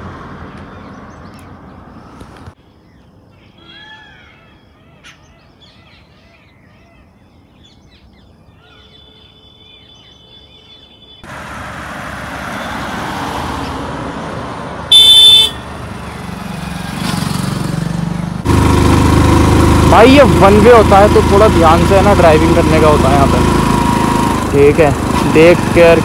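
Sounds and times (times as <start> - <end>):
vehicle horn honk: 14.9 - 15.7.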